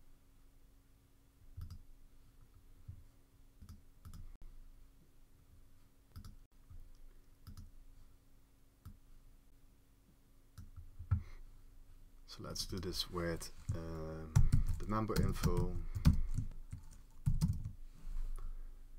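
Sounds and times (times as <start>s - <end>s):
faint low hum: 0.0s - 18.9s
computer mouse clicks: 1.6s - 1.8s, 6.1s - 7.7s.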